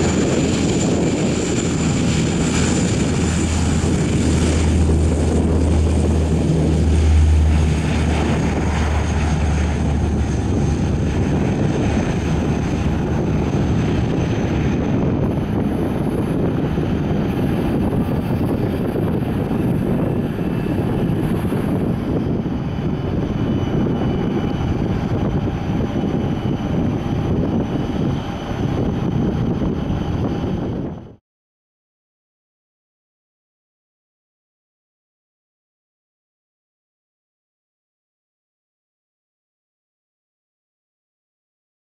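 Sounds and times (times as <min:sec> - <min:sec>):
turboprop engines droning: 0:00.0 - 0:31.2.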